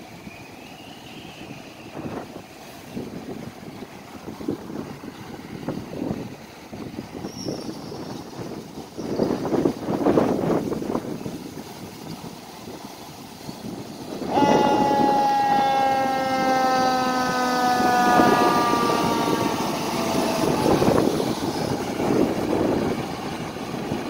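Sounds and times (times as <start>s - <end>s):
road noise: 0.0s - 24.0s
fire truck air horn: 14.2s - 21.1s
truck engine passing: 14.3s - 24.0s.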